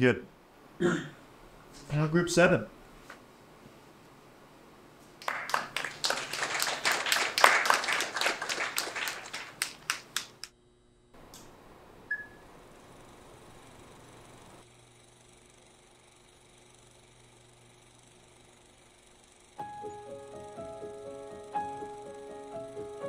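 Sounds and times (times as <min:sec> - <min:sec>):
group clapping: 0:05.2 - 0:10.5.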